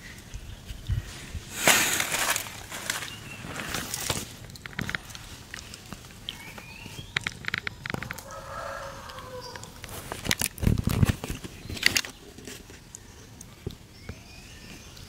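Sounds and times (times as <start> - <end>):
rooster crowing: 8.1 - 9.8.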